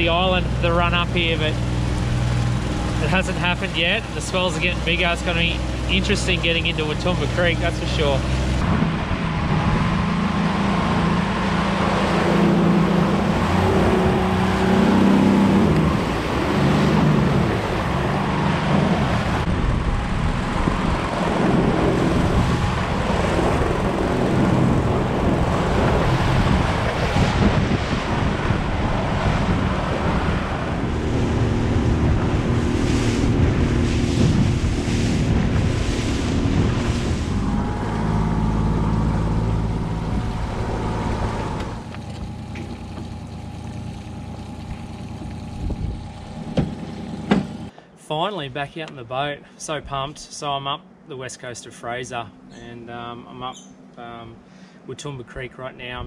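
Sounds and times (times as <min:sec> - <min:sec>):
outboard motor running: 0:00.0 - 0:47.7
water splashing against hull: 0:00.0 - 0:47.7
wind buffeting microphone: 0:11.9 - 0:41.8, 0:44.6 - 0:46.9.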